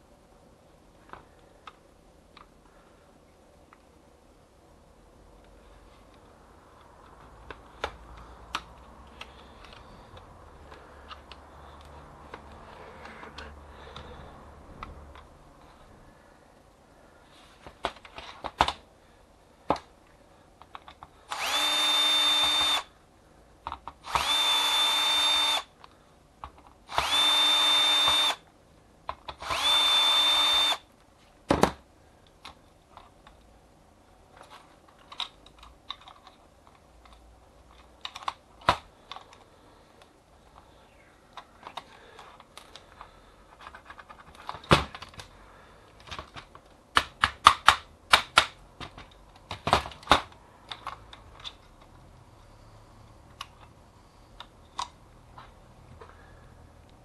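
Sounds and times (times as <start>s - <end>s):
small parts and tools clicking: 6.8s - 14.1s, 20.6s - 22.9s, 34.4s - 40.7s, 45.9s - 52.0s
cordless drill whining: 21.3s - 22.9s, 24.0s - 25.7s, 26.9s - 28.4s, 29.4s - 30.8s.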